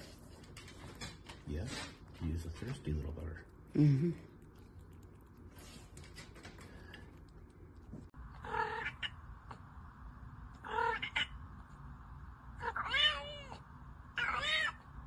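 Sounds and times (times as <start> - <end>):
cat meowing: 8.4 - 9.2, 10.6 - 11.4, 12.6 - 13.6, 14.2 - 14.8.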